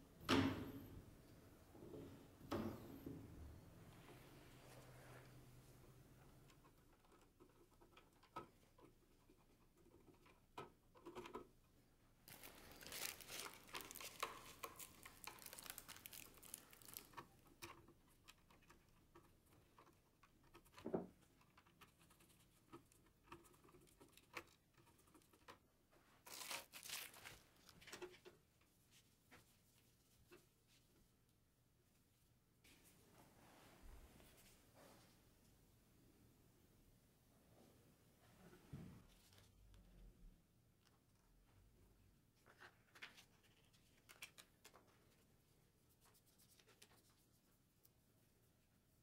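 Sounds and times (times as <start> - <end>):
gloved hands rustling cable: 12.2 - 25.6, 26.2 - 30.8.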